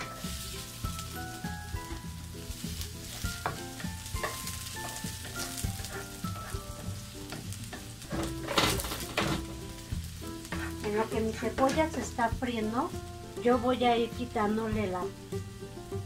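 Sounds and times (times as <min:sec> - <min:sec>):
onion sizzling in oil: 0:00.0 - 0:16.0
wooden spatula scraping pan: 0:03.0 - 0:09.6, 0:10.4 - 0:12.0.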